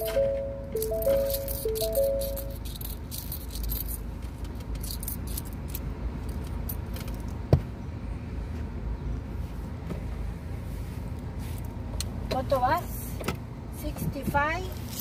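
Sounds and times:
small metal objects jingling: 0:00.8 - 0:07.3.

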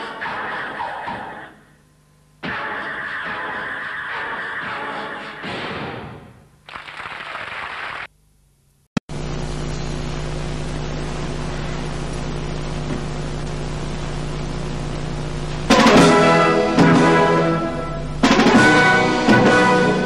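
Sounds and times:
tape hiss: 0:06.6 - 0:20.0
electrical hum: 0:08.1 - 0:18.3
orchestral music: 0:15.7 - 0:20.0.

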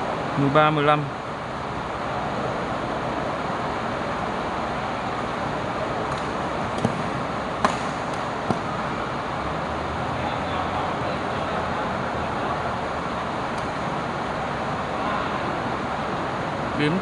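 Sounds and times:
badminton racket hitting shuttlecock: 0:06.1 - 0:08.7.

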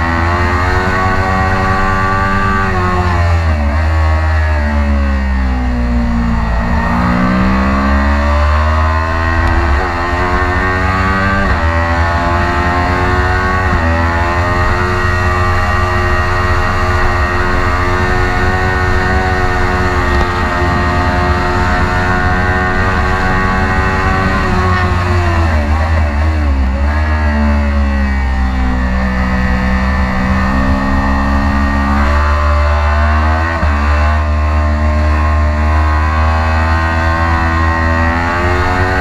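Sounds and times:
motorcycle engine revving: 0:00.0 - 0:39.0
wind rumble on microphone: 0:05.1 - 0:32.8.

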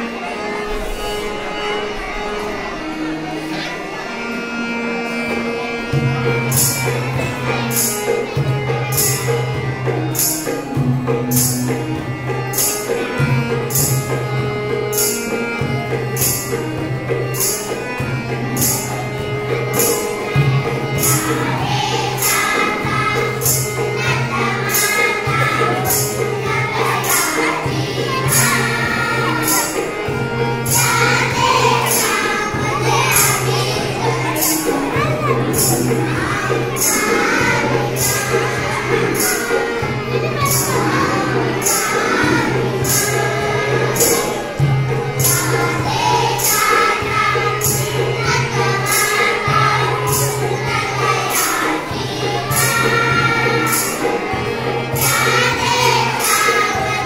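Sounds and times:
children singing: 0:00.0 - 0:57.0
harmonium melody: 0:00.0 - 0:57.0
hand drum beat: 0:19.5 - 0:57.0.

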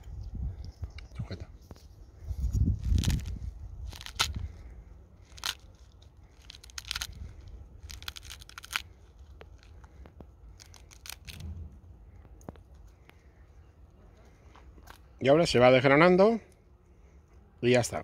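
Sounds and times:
fruit rind cracking and tearing: 0:02.5 - 0:11.6.

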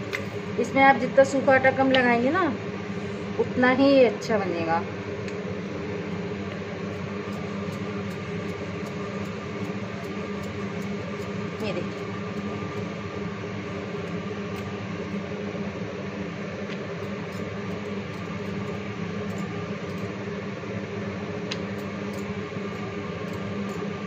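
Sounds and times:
electric motor hum: 0:00.0 - 0:24.0.

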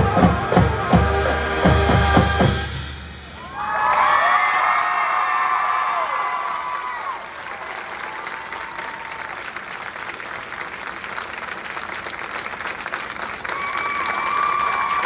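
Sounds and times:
cheers and whoops: 0:03.4 - 0:09.5, 0:13.5 - 0:15.0
crowd applauding: 0:03.4 - 0:15.0.

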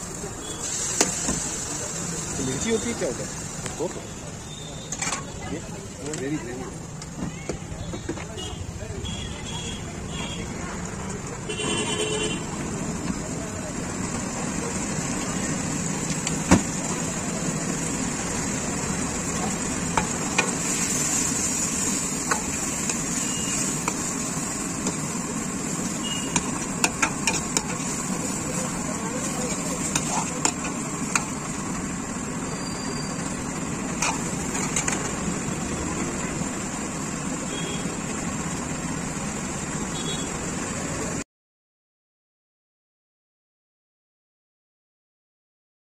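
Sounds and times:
gravy sizzling: 0:00.0 - 0:06.0, 0:12.5 - 0:37.3
gas flame roaring: 0:10.5 - 0:40.0
steel ladle striking wok: 0:25.8 - 0:28.0.

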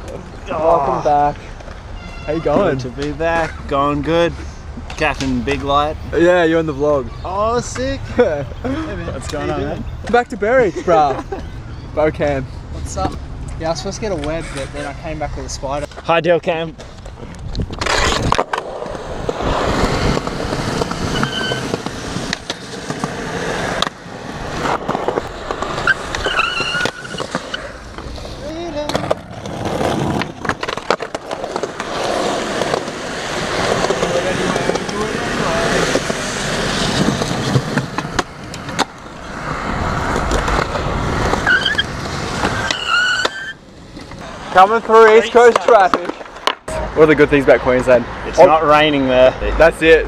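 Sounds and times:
skateboard wheels rolling on concrete: 0:00.0 - 0:50.0
high squeak: 0:02.0 - 0:02.7, 0:21.1 - 0:21.7, 0:25.8 - 0:27.7, 0:41.4 - 0:41.9, 0:42.5 - 0:43.6
skateboard clacks: 0:17.7 - 0:44.5, 0:45.1 - 0:46.7.

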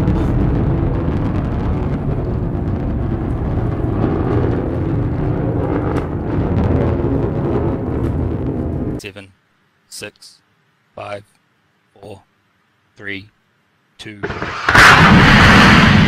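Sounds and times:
rocket engine low rumble: 0:00.0 - 0:09.0, 0:14.2 - 0:16.0.

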